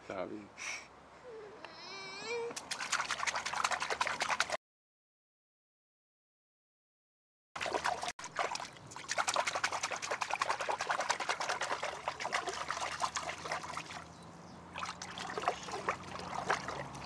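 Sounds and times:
water splashing in a pool: 2.5s - 4.6s, 7.6s - 17.0s.

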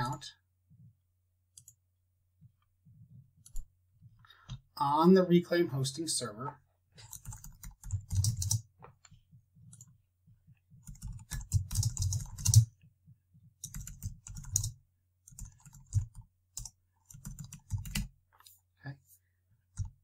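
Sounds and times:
computer keyboard typing: 7.0s - 8.6s, 10.8s - 12.7s, 13.6s - 18.1s, 19.7s - 20.0s.

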